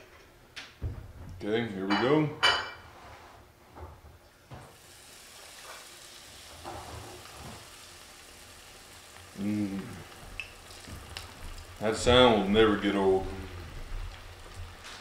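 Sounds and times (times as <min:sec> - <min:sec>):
fish deep-frying in hot oil: 0:04.8 - 0:15.0.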